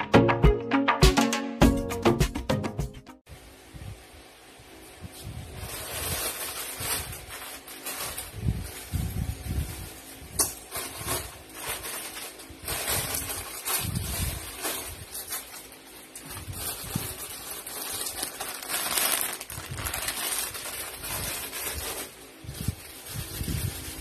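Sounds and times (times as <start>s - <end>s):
plastic bags rustling: 4.9s - 24.0s.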